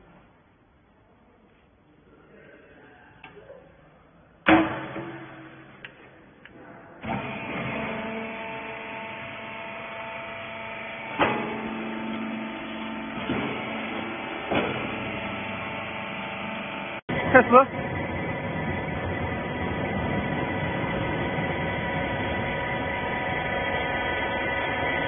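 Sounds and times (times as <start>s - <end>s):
electric motor and pump humming: 7.0s - 25.0s.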